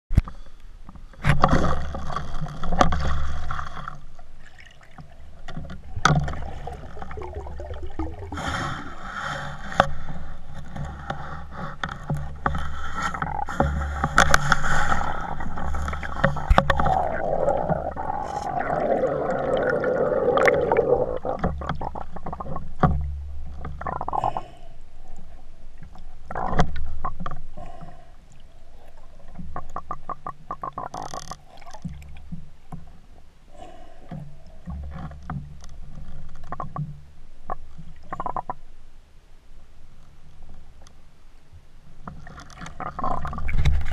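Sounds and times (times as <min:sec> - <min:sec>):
muffled underwater rushing gurgle: 0:01.2 - 0:11.3, 0:12.4 - 0:32.7.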